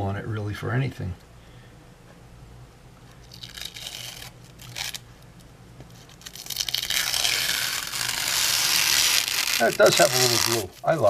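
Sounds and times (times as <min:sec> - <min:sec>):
plastic wrap peeling crackle: 0:03.2 - 0:05.0, 0:06.0 - 0:11.0.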